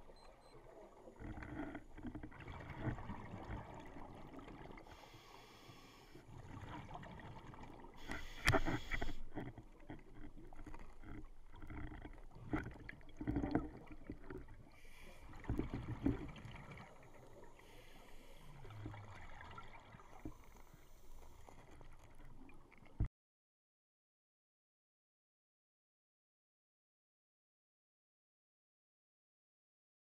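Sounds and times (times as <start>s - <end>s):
underwater bubbling and gurgling: 0.0s - 23.1s.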